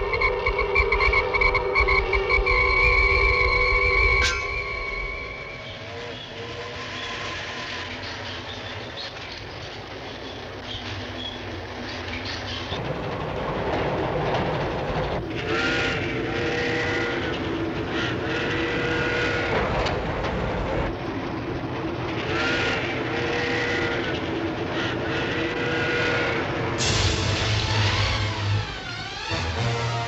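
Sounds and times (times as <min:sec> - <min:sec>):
steam train whistle: 0:00.0 - 0:08.0, 0:15.4 - 0:20.0, 0:22.2 - 0:30.0
steam train rumble and clatter: 0:00.0 - 0:30.0.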